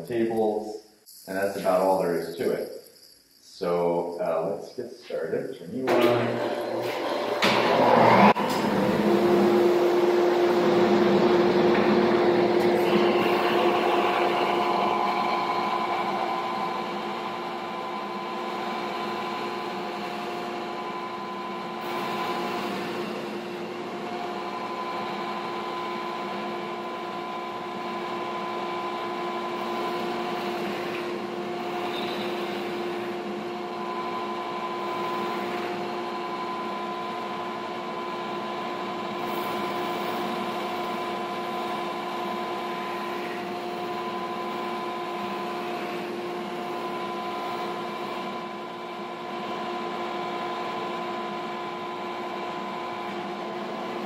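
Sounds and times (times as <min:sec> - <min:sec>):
dust collector running: 0:03.6 - 0:54.0
sander motor hum: 0:05.8 - 0:54.0.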